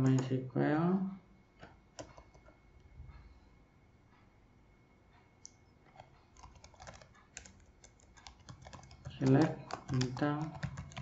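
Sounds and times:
keyboard typing: 1.6 - 2.6, 5.4 - 11.0.

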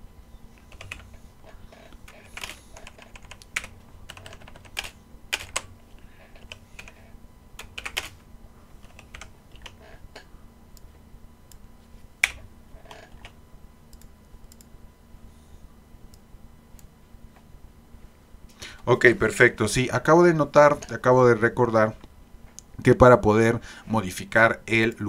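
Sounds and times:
typing on computer keyboard: 0.6 - 1.1, 2.0 - 5.7, 7.6 - 8.1, 8.9 - 9.8.

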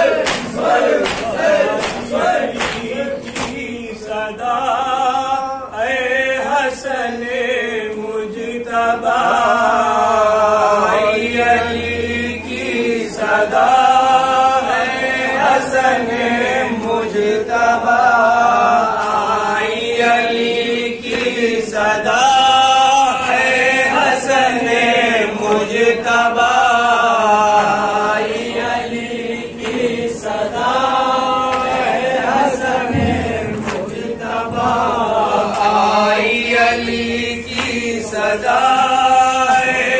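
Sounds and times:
men chanting in unison: 0.0 - 39.9
hands slapping chests: 0.2 - 3.7.

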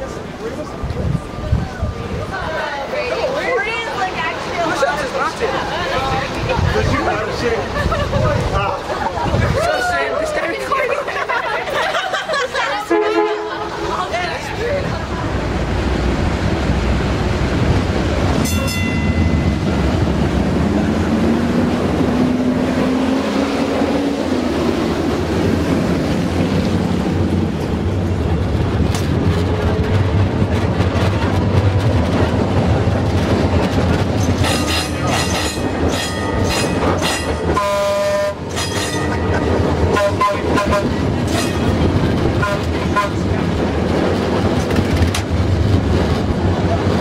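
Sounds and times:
streetcar wheels rumbling on rails: 0.0 - 47.0
bell ringing: 18.4 - 19.7.

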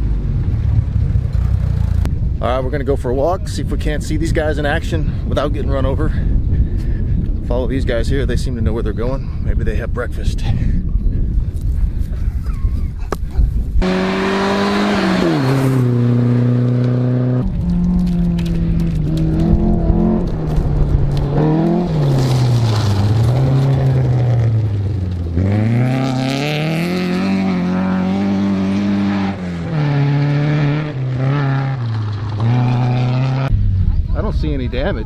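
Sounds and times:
rally car engines revving: 13.8 - 34.3.

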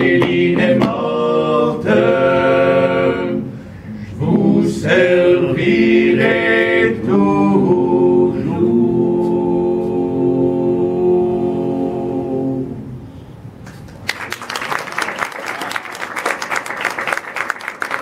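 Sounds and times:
men singing in harmony: 0.0 - 12.8
audience applause: 14.0 - 18.0.

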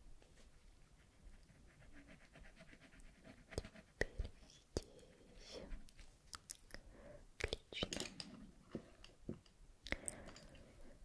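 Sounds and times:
colouring strokes on paper: 0.4 - 5.9.

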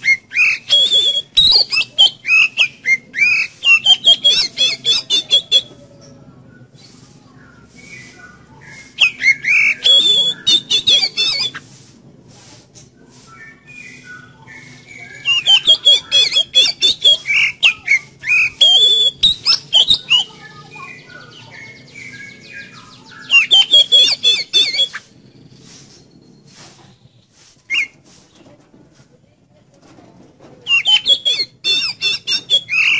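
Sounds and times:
bird harsh chattering: 0.0 - 5.8, 7.7 - 11.8, 13.8 - 25.6, 30.7 - 32.9
bird singing whistled notes: 0.0 - 11.6, 13.2 - 28.0, 30.7 - 32.9.

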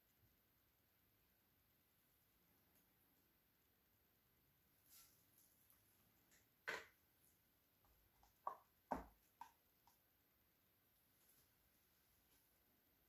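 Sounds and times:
knocks on bamboo board: 8.4 - 9.6.

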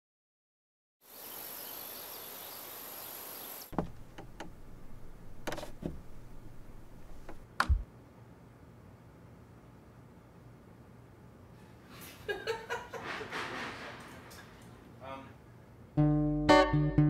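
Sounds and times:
steady hiss: 1.0 - 7.4.

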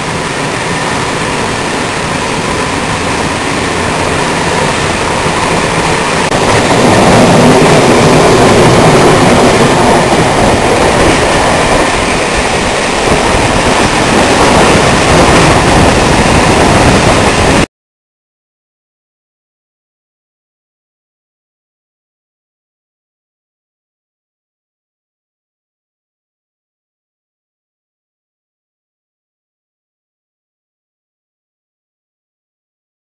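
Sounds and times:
train wheels rumbling on rail: 0.0 - 17.7.

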